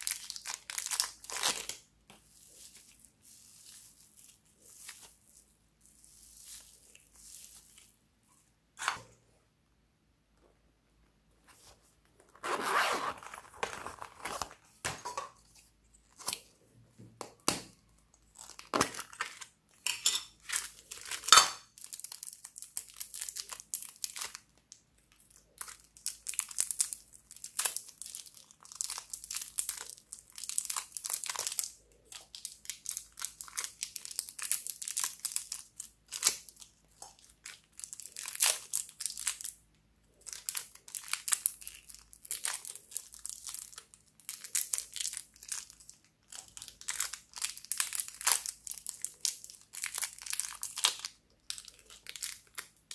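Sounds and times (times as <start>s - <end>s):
plastic wrappers crinkling and tearing: 0.0s - 8.0s, 18.1s - 19.8s, 20.4s - 39.6s, 40.2s - 52.9s.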